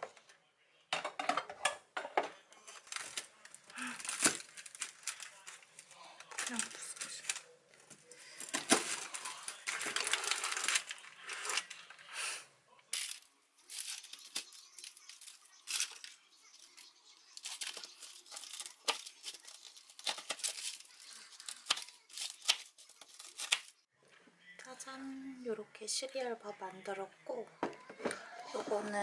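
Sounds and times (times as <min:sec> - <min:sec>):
knife crunching through cereal bar: 0:13.0 - 0:23.8.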